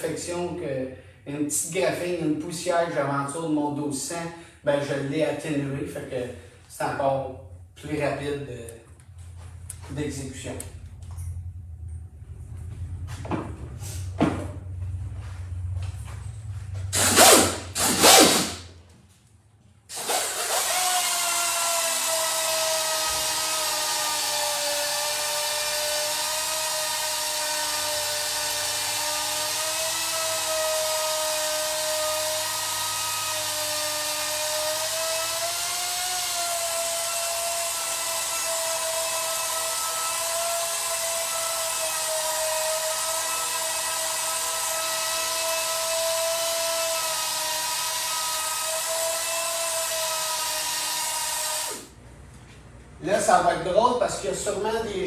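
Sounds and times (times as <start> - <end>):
air polisher whining: 16.8 - 18.7, 19.9 - 52.0
loud air hissing bursts: 16.9 - 18.7.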